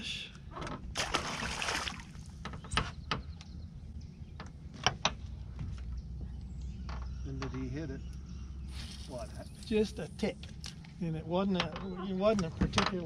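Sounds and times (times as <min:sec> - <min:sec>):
fish splashing into water: 0:01.0 - 0:02.2.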